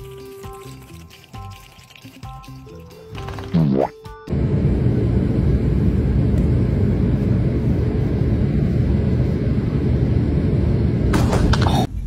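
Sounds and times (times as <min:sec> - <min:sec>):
loud low rumble: 0:04.3 - 0:11.2.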